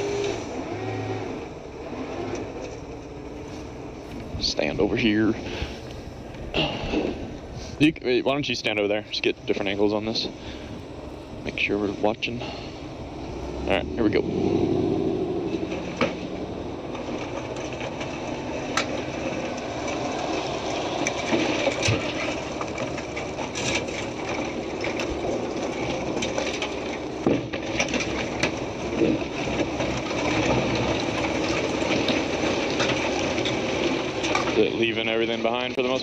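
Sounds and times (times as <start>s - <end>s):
sharp cracks and knocks: 15.5s - 34.6s.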